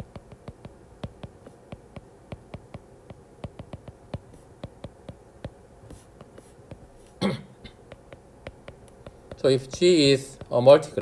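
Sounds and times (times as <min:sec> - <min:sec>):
stylus tapping on glass screen: 0:00.0 - 0:05.6, 0:07.7 - 0:10.6.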